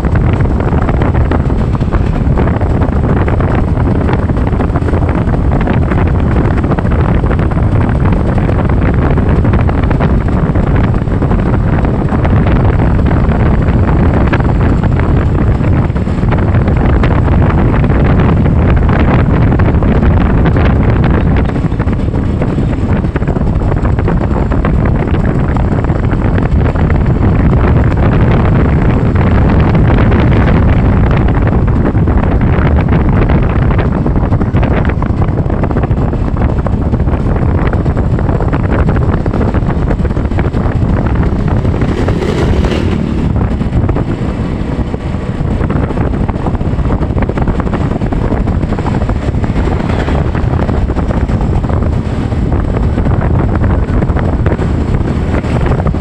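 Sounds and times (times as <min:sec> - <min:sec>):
vehicle engine and road noise: 0:00.0 - 0:56.0
wind buffeting microphone: 0:00.0 - 0:56.0.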